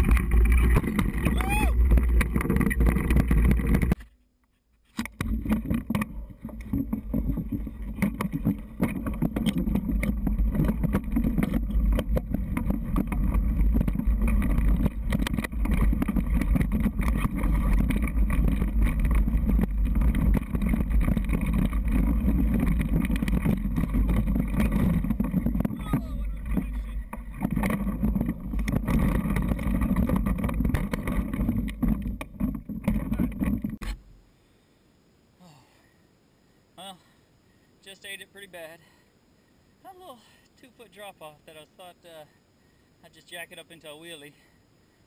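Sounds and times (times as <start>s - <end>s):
wind rumble on microphone: 0.0s - 4.0s, 5.2s - 33.9s
bike knocking and rattling: 0.0s - 34.0s.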